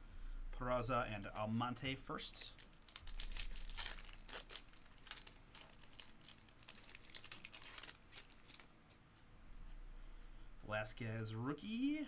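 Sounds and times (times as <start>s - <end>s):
foil wrapper crinkling and tearing: 2.2s - 8.7s.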